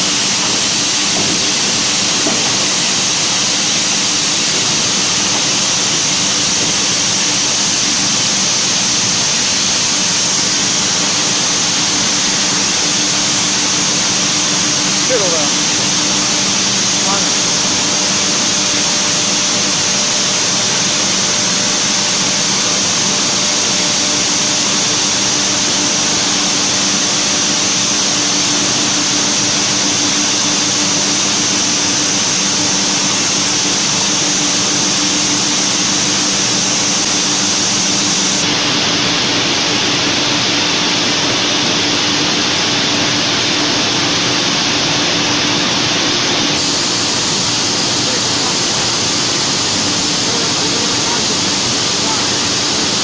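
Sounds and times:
loud steady machine drone: 0:00.0 - 0:53.0.

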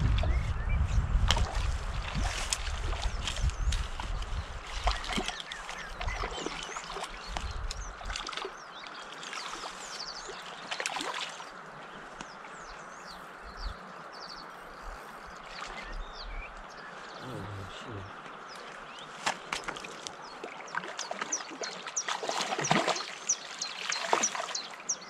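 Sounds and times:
river water flowing: 0:01.5 - 0:25.0
small birds chirping: 0:01.6 - 0:25.0.

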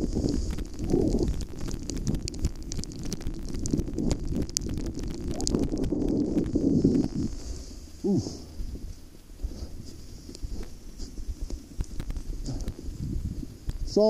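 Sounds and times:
gear sliding on packed snow: 0:00.0 - 0:01.3, 0:05.4 - 0:14.0
wind buffeting microphone: 0:00.0 - 0:14.0.

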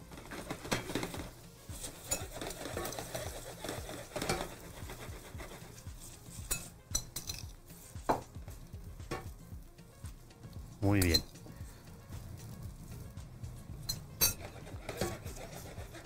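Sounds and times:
spatula stirring in skillet: 0:00.0 - 0:16.0
metal spoon clinking on bowls: 0:06.4 - 0:07.6, 0:13.8 - 0:14.5.

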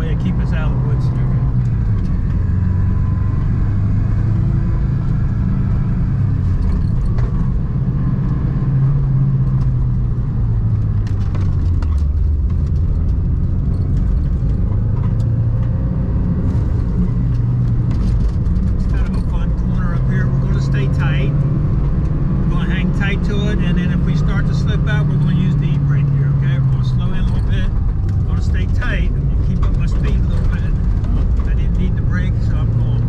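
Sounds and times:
road noise: 0:00.0 - 0:33.0
vehicle engine: 0:00.0 - 0:33.0.

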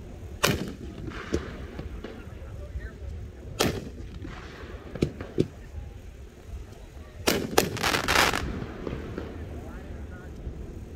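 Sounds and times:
firework cake bangs: 0:00.4 - 0:02.5, 0:07.2 - 0:09.4
small firework pops: 0:00.4 - 0:05.7, 0:06.7 - 0:09.4.

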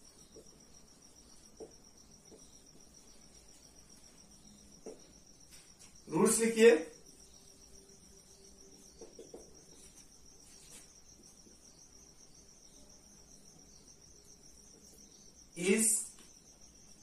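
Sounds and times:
marker writing on whiteboard: 0:08.7 - 0:11.7.

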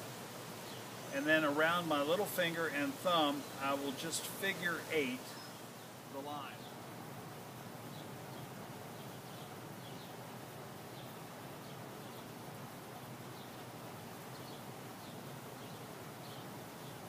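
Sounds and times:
outdoor background hiss: 0:00.0 - 0:17.0
faint bird chirps: 0:03.1 - 0:06.8, 0:07.8 - 0:10.2, 0:10.8 - 0:17.0.

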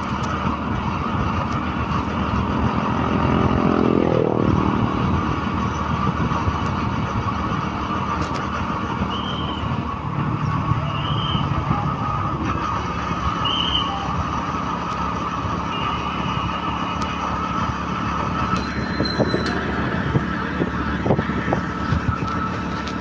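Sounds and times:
vehicle engine and road noise: 0:00.0 - 0:23.0
short high beeps: 0:18.6 - 0:20.0.

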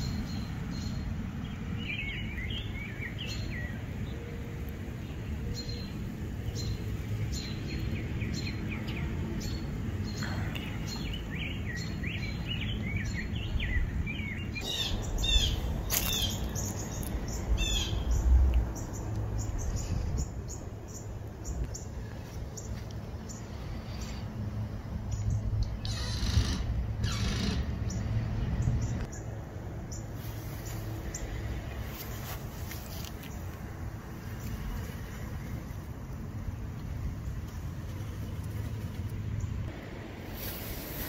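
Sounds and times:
songbirds chirping: 0:00.0 - 0:40.6
steady low rumble: 0:04.7 - 0:25.9.

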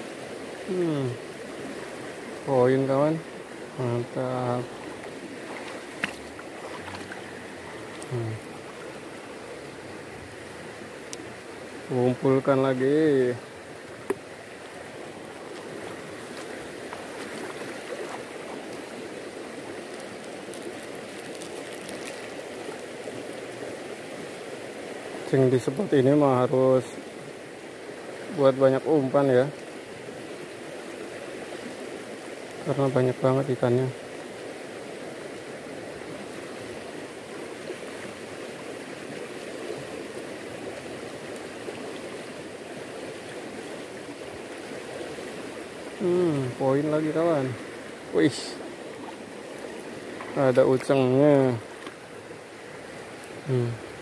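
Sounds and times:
river rushing: 0:00.0 - 0:54.0.

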